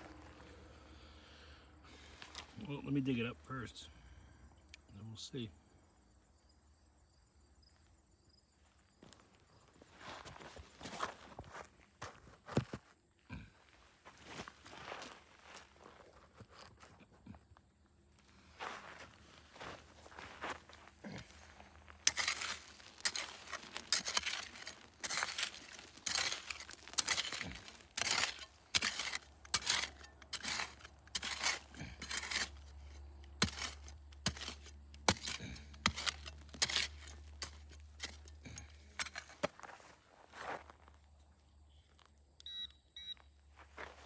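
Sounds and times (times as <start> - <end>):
pick striking stony soil: 18.4 - 41.0.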